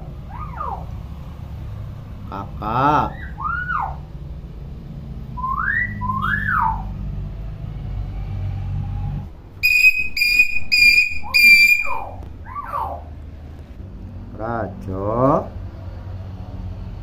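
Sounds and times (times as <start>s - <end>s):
myna whistling: 5.4s - 6.9s, 9.6s - 13.0s.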